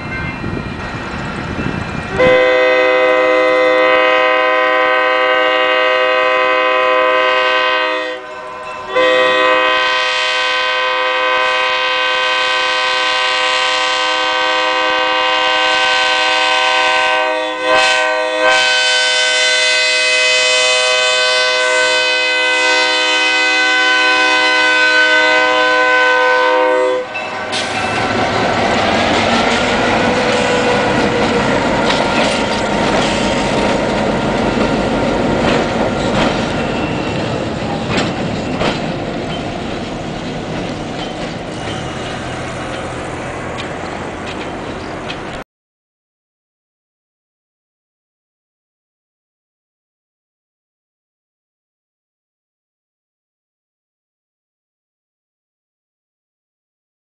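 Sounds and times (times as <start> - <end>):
train rumbling and clattering: 0.0 - 6.4, 27.0 - 45.4
locomotive horn chord: 2.1 - 34.4.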